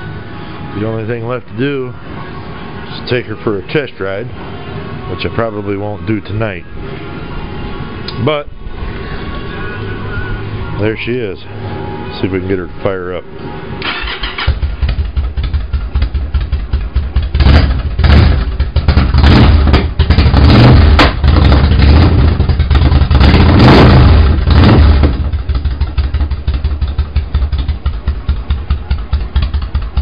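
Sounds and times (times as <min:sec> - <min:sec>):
motorcycle engine revving and idling: 0:13.8 - 0:30.0.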